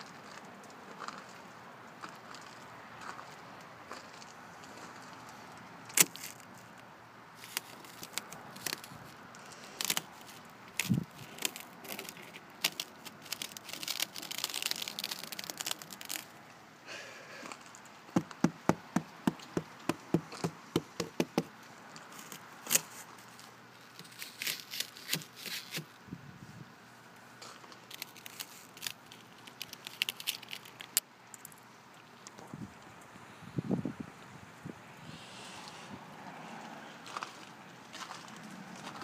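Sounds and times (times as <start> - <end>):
fingers tapping on ice: 18.2 - 21.5.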